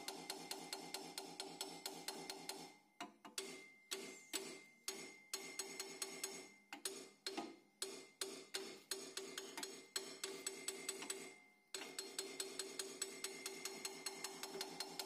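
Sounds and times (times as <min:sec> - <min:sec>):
hammer tapping on brake drum: 0:00.0 - 0:15.0.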